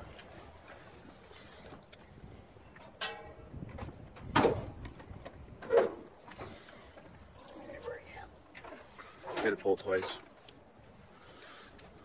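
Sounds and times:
metal hood clunks: 0:04.2 - 0:04.7.

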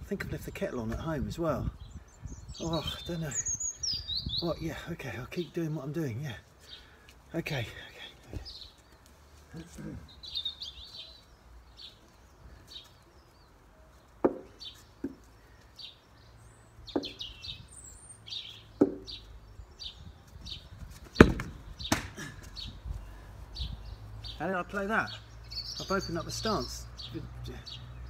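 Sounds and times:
birds chirping: 0:00.0 - 0:28.0
plastic cricket bat knocks: 0:14.2 - 0:15.2, 0:18.8 - 0:19.1, 0:21.2 - 0:22.2.

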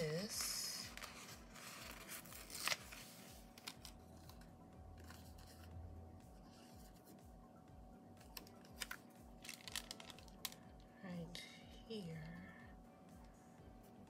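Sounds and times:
paper sticker handling: 0:00.8 - 0:05.7, 0:08.3 - 0:10.6.

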